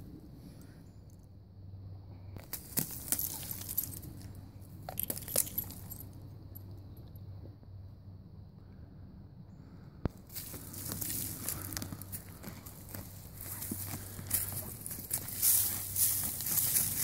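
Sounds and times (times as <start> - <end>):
dog paws scraping dirt: 2.4 - 6.0, 10.3 - 17.0
collar hardware jingling: 2.5 - 6.7, 13.8 - 17.0.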